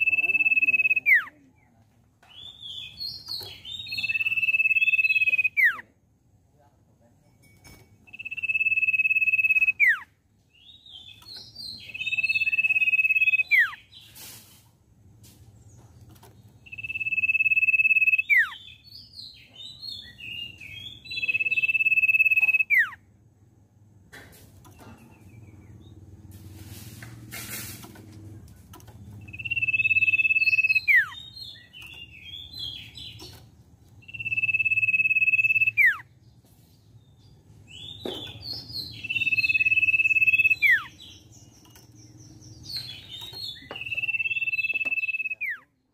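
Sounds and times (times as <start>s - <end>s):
bird singing whistles and chirps: 0.0s - 1.3s, 2.3s - 5.9s, 8.1s - 14.1s, 16.6s - 23.0s, 29.2s - 33.4s, 34.0s - 36.1s, 37.2s - 45.7s.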